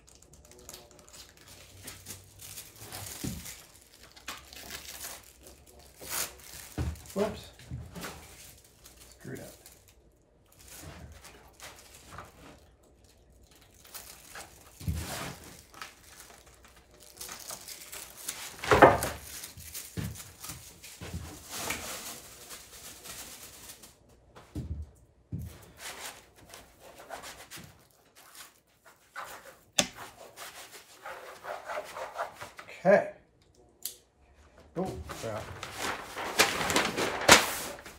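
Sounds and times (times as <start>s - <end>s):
mylar sheet crinkling: 0.0s - 24.1s, 25.7s - 30.8s, 35.0s - 37.9s
hands rubbing mylar on cardboard: 28.8s - 32.6s.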